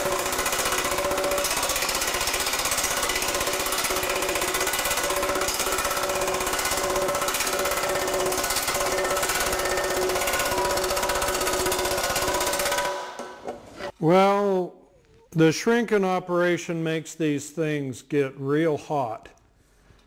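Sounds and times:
power hammer hammering metal sheet: 0.0s - 13.5s.

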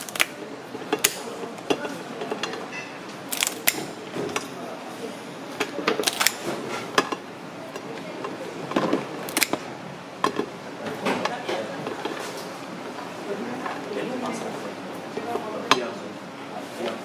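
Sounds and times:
scissors snipping crab shell: 9.3s - 9.6s.

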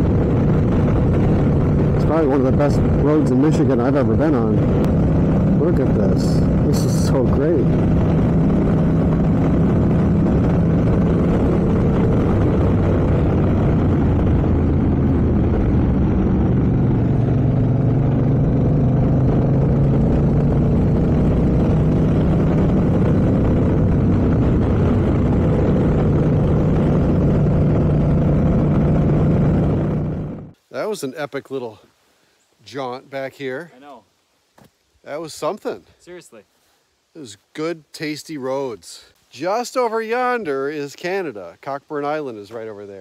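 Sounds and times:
motorcycle engine running: 0.0s - 30.6s
wind rushing over microphone: 0.0s - 30.6s.

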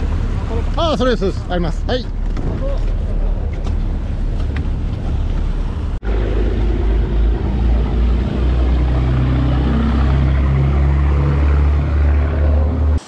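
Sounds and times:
boat engine droning: 0.0s - 13.0s.

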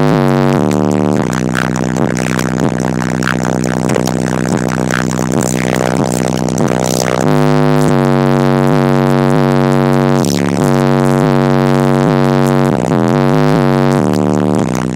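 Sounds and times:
hip-hop bass through subwoofer: 0.0s - 14.9s.

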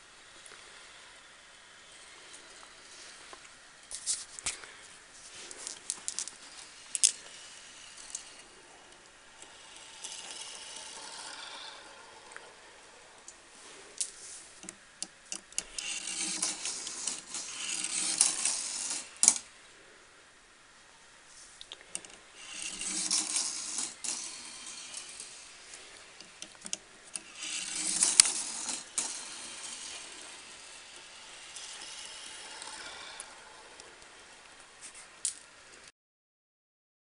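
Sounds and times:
marbles rolling on plastic track: 5.5s - 13.4s, 14.0s - 19.5s, 21.9s - 34.1s
marbles clicking on track: 5.6s - 12.6s, 14.0s - 19.5s, 21.6s - 34.1s.

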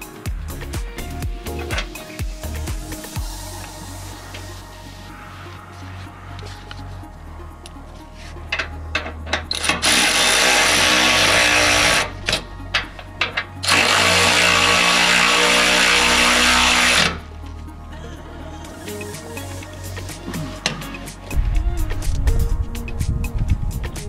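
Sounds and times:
power tool spinning socket: 8.6s - 17.2s.

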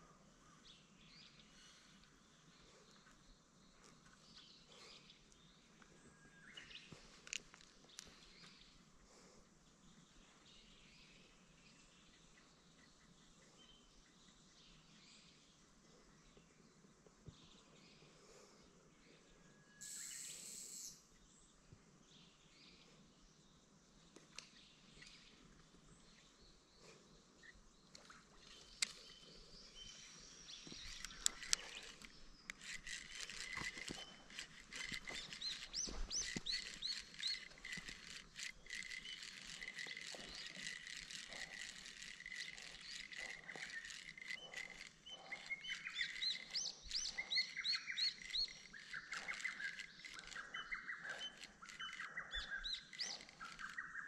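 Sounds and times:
steady high insect buzzing: 19.8s - 21.1s
birds chirping: 24.3s - 54.0s
sharp clicks: 30.7s - 53.9s.

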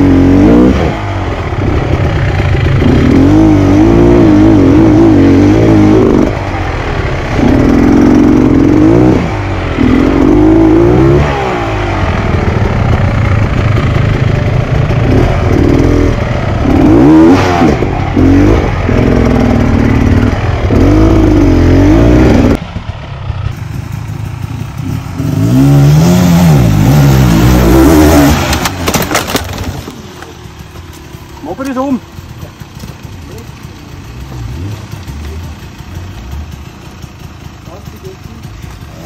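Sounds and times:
dirt bike engine revving: 0.0s - 30.7s, 31.4s - 39.0s.

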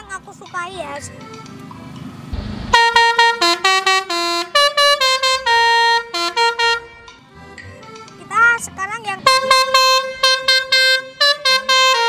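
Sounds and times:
noisy hiss: 2.1s - 3.4s
musical air horn tune: 2.4s - 7.2s, 9.2s - 12.0s.

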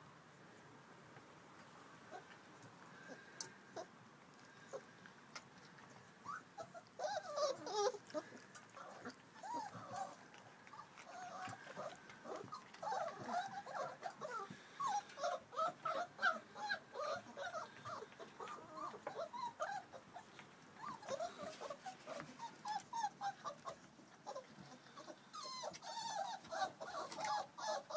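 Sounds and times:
puppies whimpering and squeaking: 5.6s - 27.9s.

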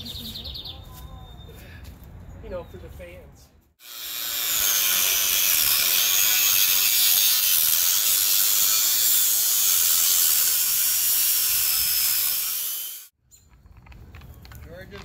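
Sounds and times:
angle grinder cutting steel: 3.8s - 13.1s.

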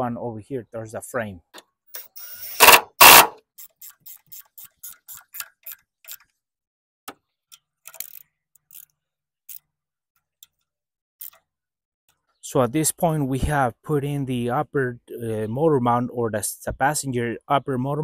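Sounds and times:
socket ratchet clicking: 2.0s - 6.2s.

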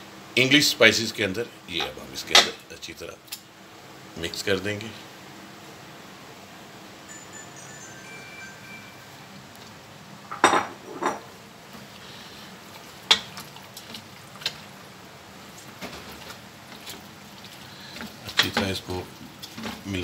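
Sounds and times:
spatula stirring meat in pot: 11.8s - 20.0s.

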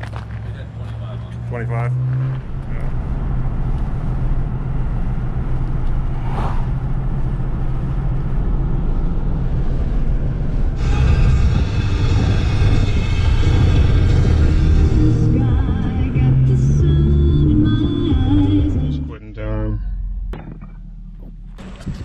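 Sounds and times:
car road and engine rumble: 0.0s - 22.0s
music: 10.8s - 19.2s, 19.8s - 22.0s.

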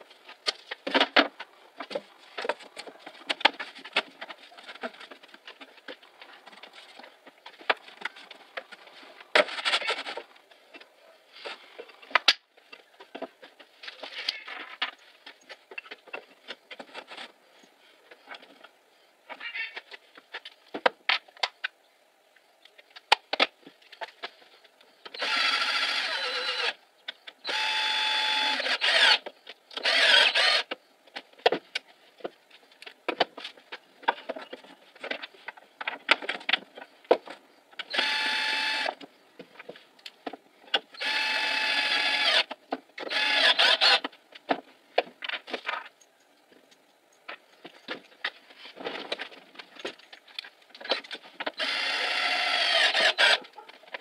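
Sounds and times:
cordless drill whining: 25.2s - 26.8s, 37.9s - 38.9s, 41.0s - 42.5s, 43.1s - 44.0s, 51.6s - 53.4s.

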